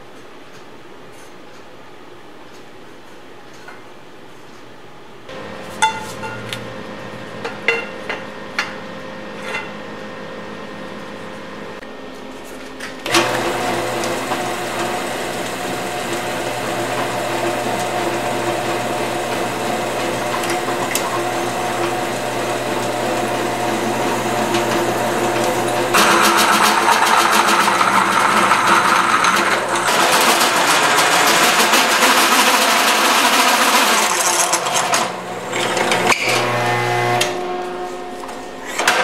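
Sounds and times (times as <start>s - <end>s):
drill press drilling steel: 13.1s - 37.5s.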